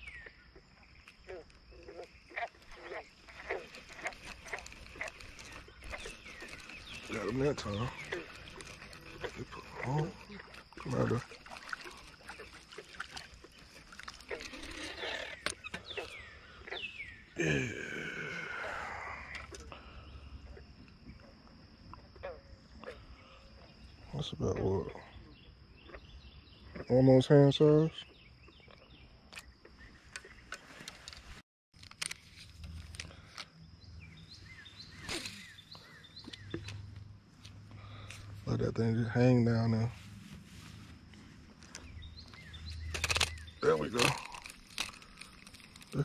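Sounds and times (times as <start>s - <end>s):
bird chirps: 0.0s - 18.2s, 33.1s - 37.1s, 40.6s - 46.0s
light water splashing: 2.3s - 16.2s
sharp clicks: 42.8s - 46.0s.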